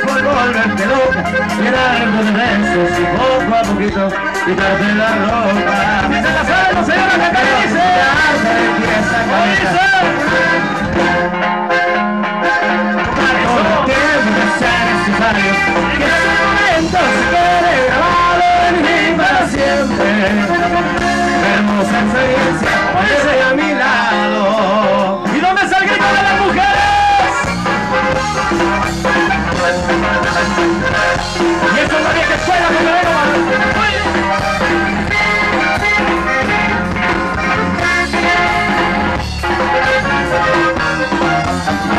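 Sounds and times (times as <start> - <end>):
button accordion: 0.0 - 41.9
electric bass: 0.0 - 41.9
guitar: 0.0 - 41.9
brass horns: 25.4 - 41.9.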